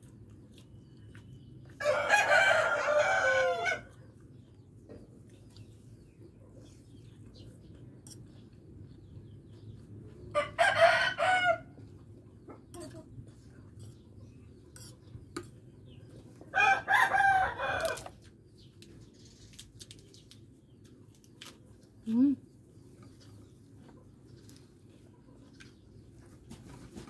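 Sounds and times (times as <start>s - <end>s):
rooster crowing: 1.8s - 4.0s, 10.4s - 11.7s, 16.5s - 18.1s.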